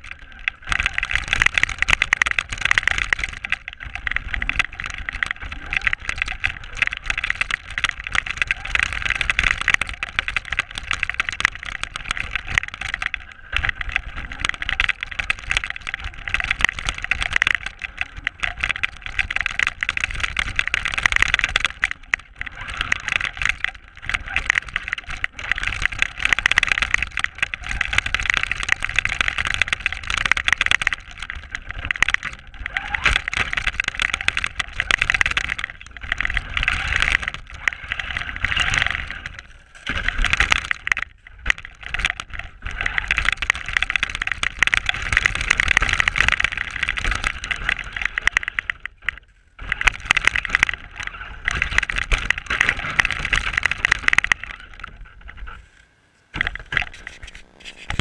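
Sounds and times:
toy car drivetrain whirring: 5.4s - 41.2s.

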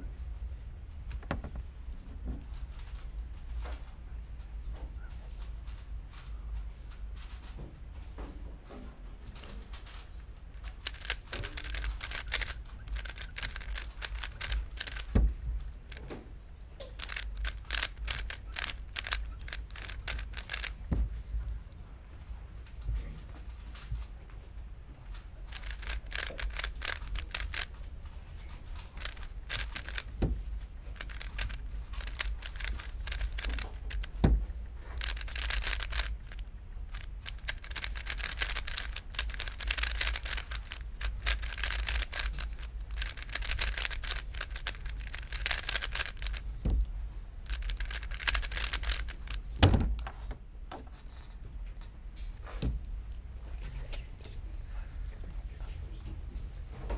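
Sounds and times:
cube thud on mat: 1.1s - 1.7s, 10.8s - 21.2s, 29.0s - 39.0s, 47.9s - 51.0s
plastic cube clicking turns: 9.4s - 16.1s, 16.8s - 20.9s, 25.4s - 50.0s.

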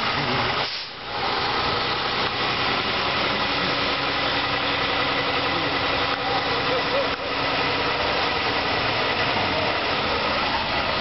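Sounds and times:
vehicle engines idling: 0.0s - 11.0s.

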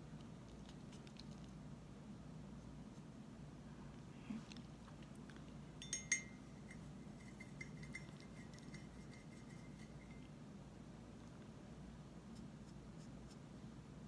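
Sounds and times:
faint room hum: 0.0s - 14.0s
sharp clink with ringing tone: 5.8s - 8.9s.

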